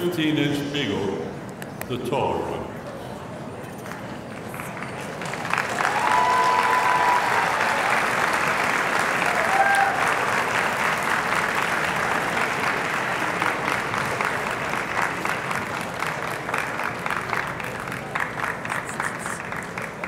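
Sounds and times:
audience applauding: 4.5 - 20.0.

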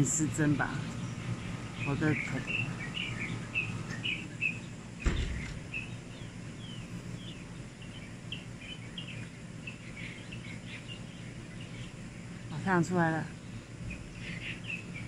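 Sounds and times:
low background hum: 0.0 - 15.0
small birds chirping: 0.0 - 15.0
sharp knock: 5.0 - 5.6.

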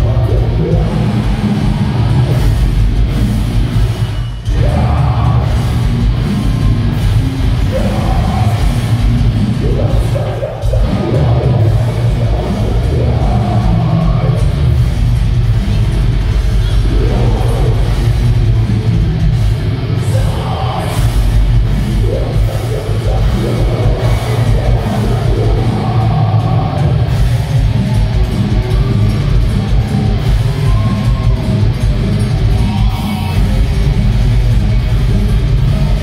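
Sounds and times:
heavy metal band playing live: 0.0 - 36.0.

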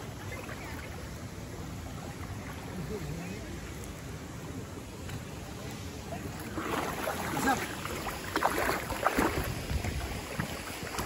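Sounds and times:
wind buffeting microphone: 8.5 - 11.0.

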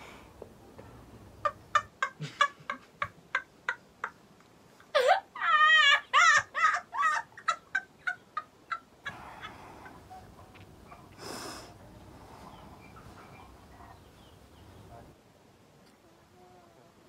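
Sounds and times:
person crying: 4.9 - 7.4.

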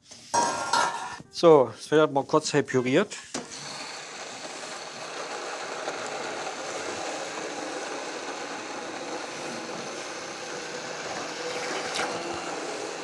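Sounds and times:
immersion blender chopping sauce: 3.5 - 13.0.

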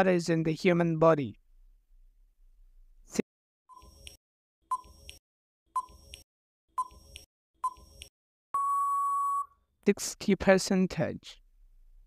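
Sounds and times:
countdown timer beeps and clicks: 3.7 - 5.2, 5.8 - 6.2, 6.8 - 9.5
long steady beep: 8.6 - 9.6.

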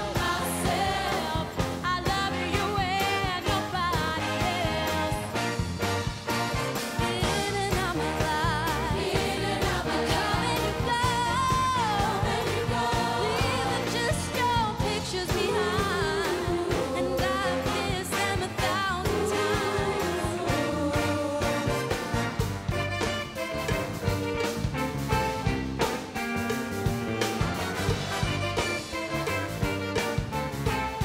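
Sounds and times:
band with steady beat: 0.0 - 31.0
woman singing with vibrato: 7.1 - 9.3, 10.4 - 12.6, 13.2 - 21.9.

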